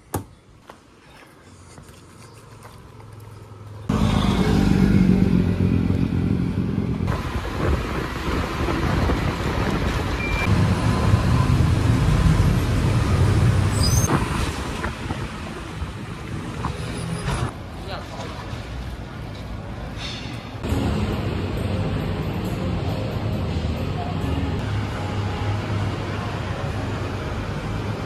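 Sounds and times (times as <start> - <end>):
road and traffic noise: 0.0 - 28.0
brief high squeak: 13.7 - 14.1.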